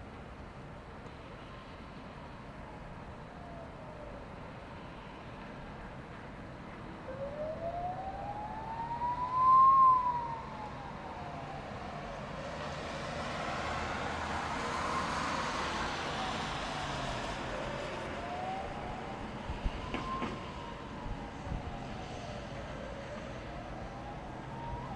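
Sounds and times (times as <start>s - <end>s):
emergency siren wailing: 2.6s - 5.4s, 6.8s - 24.9s.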